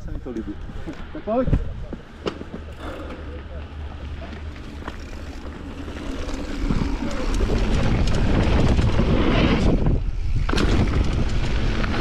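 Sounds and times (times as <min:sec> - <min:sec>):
bike rattling: 0:00.0 - 0:12.0
tyres rumbling over dirt: 0:02.5 - 0:12.0
wind on microphone: 0:06.4 - 0:12.0.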